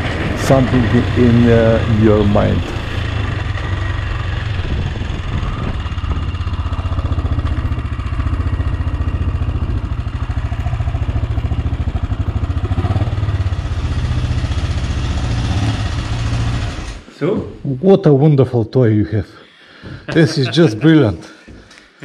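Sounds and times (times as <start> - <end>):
motorcycle engine running: 0.0 - 17.1.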